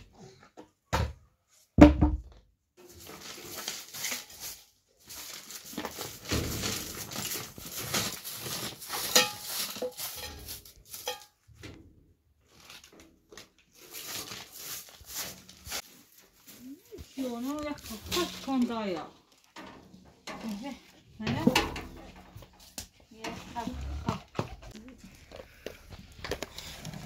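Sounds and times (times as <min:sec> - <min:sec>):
broom sweeping dirt floor: 0:07.7 - 0:11.4, 0:13.8 - 0:18.6.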